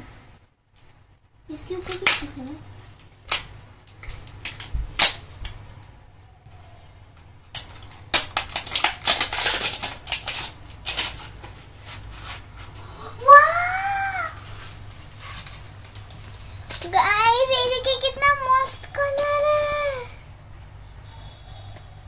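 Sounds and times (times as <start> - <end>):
packaging crackling and rustling: 7.4 - 12.7, 14.4 - 19.4.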